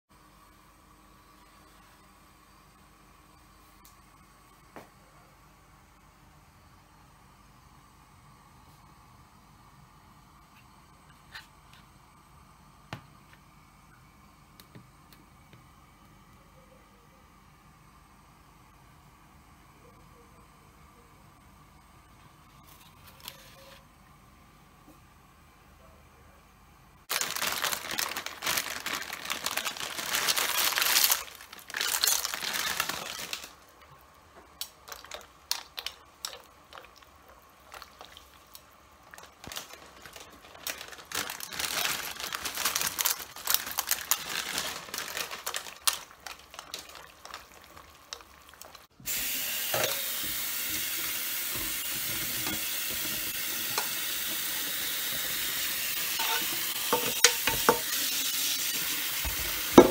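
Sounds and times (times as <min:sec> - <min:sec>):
pasta water sizzling and crackling: 0:27.1 - 0:59.9
kitchen tap running into colander: 0:45.2 - 0:59.9.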